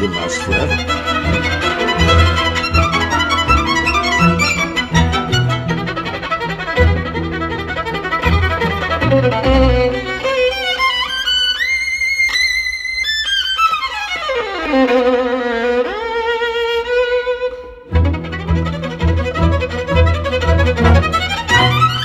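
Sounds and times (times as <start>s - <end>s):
orchestra playing: 0.0s - 10.4s, 18.4s - 22.0s
solo violin: 0.0s - 22.0s.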